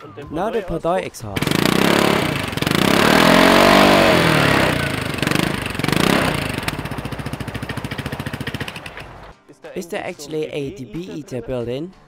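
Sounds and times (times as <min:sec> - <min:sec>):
scooter engine revving: 0:01.3 - 0:09.3.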